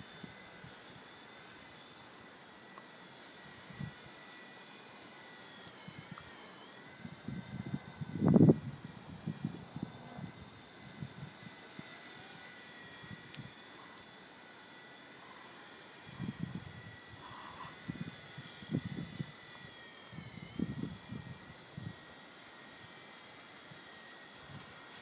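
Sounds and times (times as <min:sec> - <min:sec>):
electric motor whining: 0:00.0 - 0:25.0
wind gusts on microphone: 0:07.0 - 0:11.6, 0:16.1 - 0:19.4, 0:20.1 - 0:22.0.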